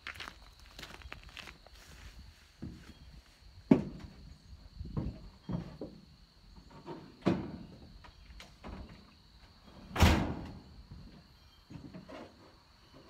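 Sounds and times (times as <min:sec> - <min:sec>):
knocks and thuds: 0:03.7 - 0:04.2.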